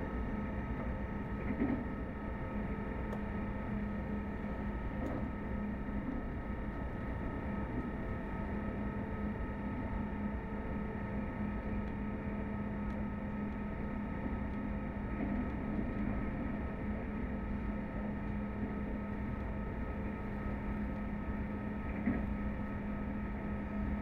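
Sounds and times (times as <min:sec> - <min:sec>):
train running rumble: 0:00.0 - 0:08.6.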